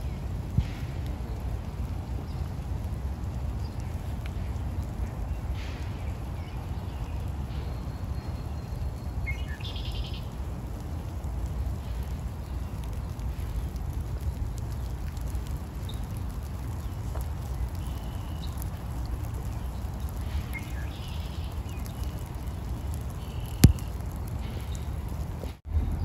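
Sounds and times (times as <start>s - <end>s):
raindrop ticks: 0.0s - 25.6s
bird chirps: 6.4s - 10.3s, 20.5s - 22.2s
low rumble: 22.3s - 26.0s.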